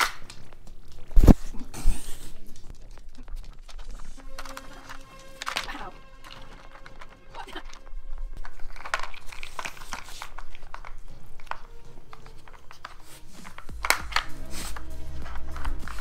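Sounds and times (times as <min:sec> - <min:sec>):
plastic puzzle lids clacking: 0:04.2 - 0:07.8, 0:08.4 - 0:16.0.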